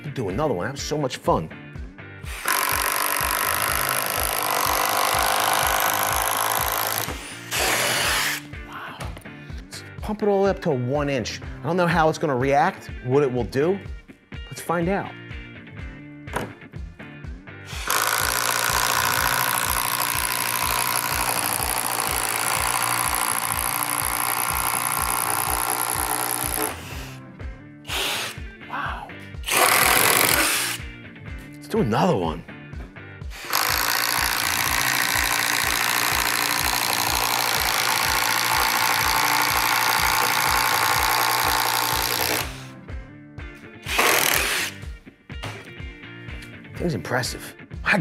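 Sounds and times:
impact driver drilling wood: 2.2 - 8.5, 17.7 - 27.2, 27.9 - 28.5, 29.4 - 30.9, 33.3 - 42.7, 43.8 - 44.8.

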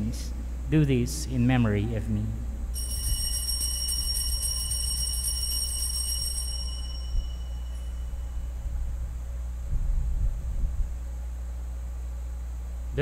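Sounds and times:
low steady hum: 0.0 - 13.0
small bell ringing: 2.7 - 8.6.

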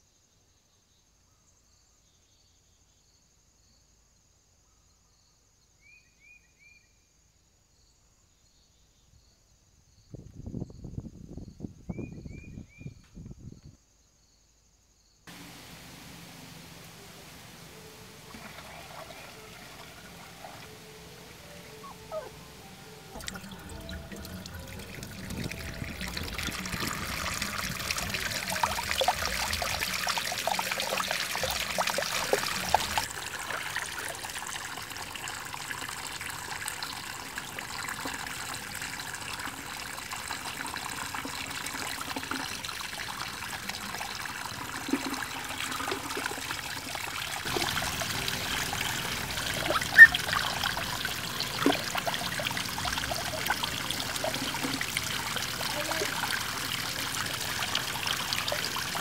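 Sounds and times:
water spilling over rocks: 15.3 - 21.8, 22.8 - 59.0
water trickling onto stone: 23.2 - 59.0.

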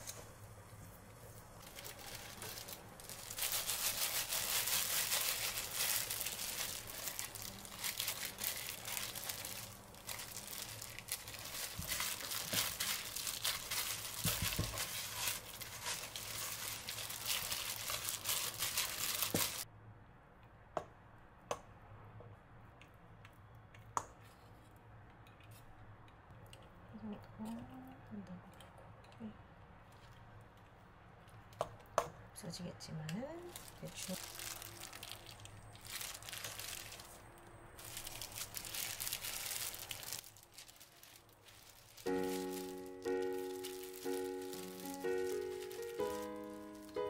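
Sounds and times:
rustling crinkling noise: 0.0 - 19.6, 29.8 - 31.6, 33.4 - 47.0.

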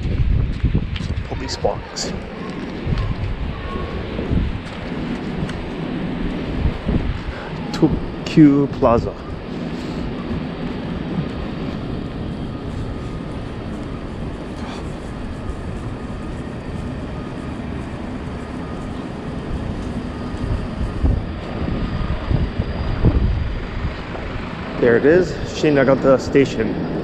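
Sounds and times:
city street rumble: 0.0 - 27.0.

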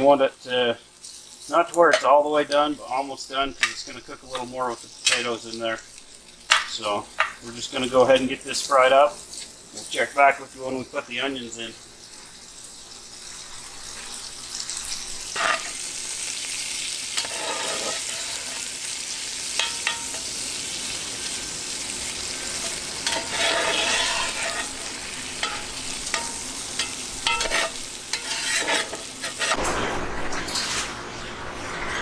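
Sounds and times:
bacon sizzling in a pot: 0.0 - 29.6
metal spatula scraping a pot: 15.3 - 15.9, 17.1 - 20.3, 22.3 - 29.6.

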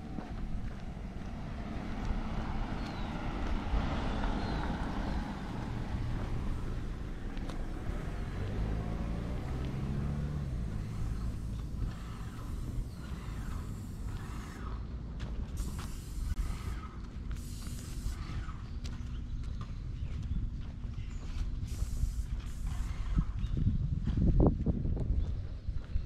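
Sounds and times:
car passing: 0.0 - 18.6
low engine hum: 0.0 - 26.0.

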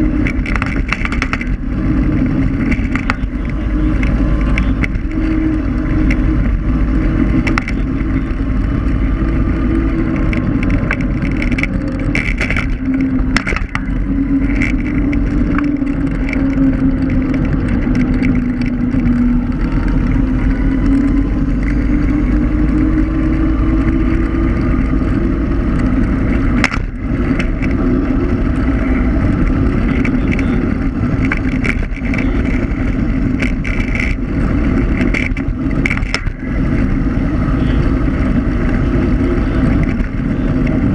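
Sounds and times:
electric scooter motor hum: 0.0 - 40.9
low rumble: 0.0 - 40.9.

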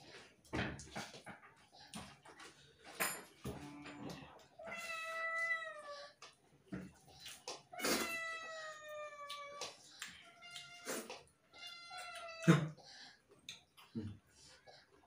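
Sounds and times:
cat meowing: 4.6 - 6.2, 7.8 - 12.5.

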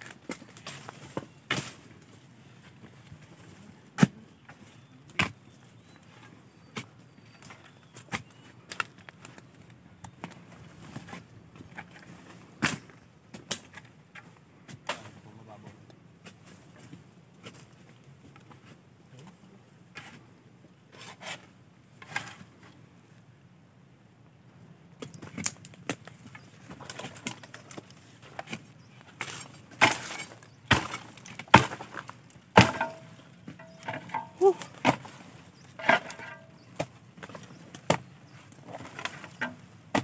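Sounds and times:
sharp knocks and cracks: 25.0 - 40.0.

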